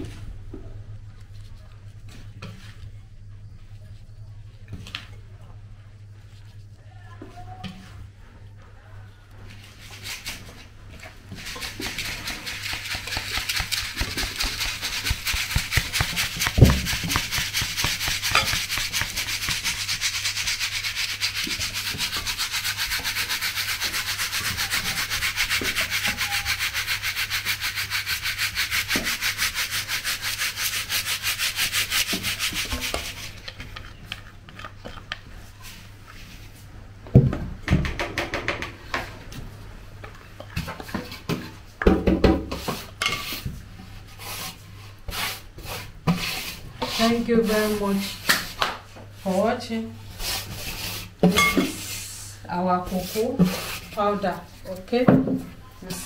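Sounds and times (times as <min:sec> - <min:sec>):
sieve scraping powder: 0:11.3 - 0:33.4, 0:44.1 - 0:48.3, 0:49.2 - 0:54.9.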